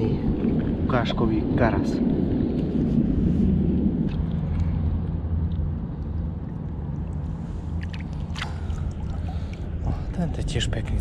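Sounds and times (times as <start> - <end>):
constant hum: 0.0 - 11.0
low steady rumble: 0.0 - 11.0.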